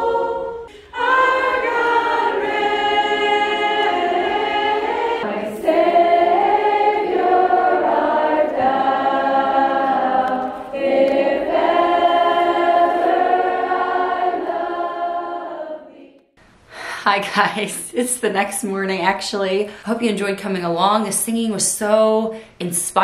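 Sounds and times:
women's choir singing: 0.0 - 16.3.

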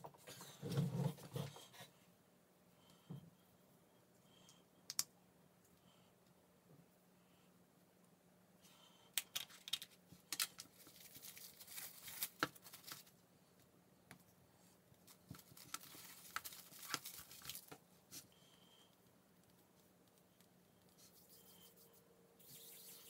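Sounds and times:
plastic wrap crinkling: 9.3 - 13.2, 15.1 - 17.8.

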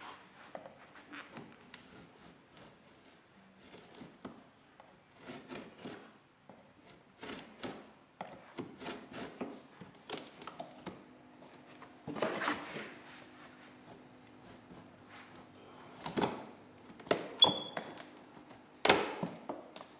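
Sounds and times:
knife scraping wood: 1.0 - 4.4, 5.1 - 6.2, 6.8 - 10.5, 11.4 - 18.6.

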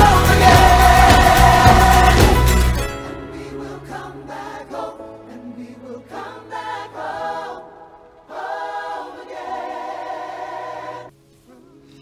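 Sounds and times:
backing track with bass line: 0.0 - 3.0
choir singing: 0.0 - 12.0.

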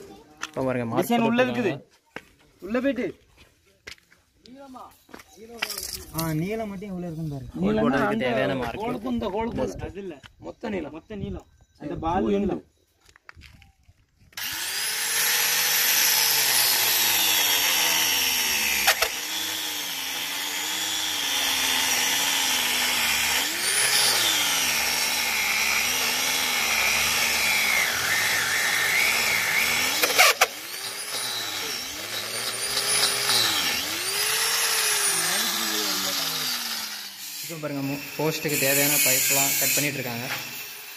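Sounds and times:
angle grinder drilling stone: 14.3 - 40.9.

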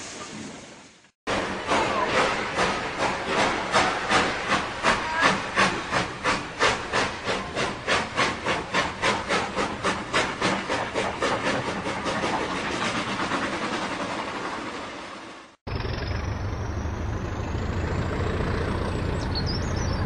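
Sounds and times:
steam hiss: 0.0 - 15.4
steam locomotive chuffing: 1.3 - 20.0.

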